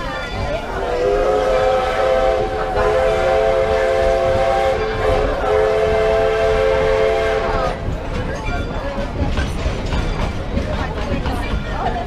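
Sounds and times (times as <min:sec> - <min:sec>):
train coaches rumbling past: 0:00.0 - 0:12.0
steam locomotive whistle: 0:00.7 - 0:07.8.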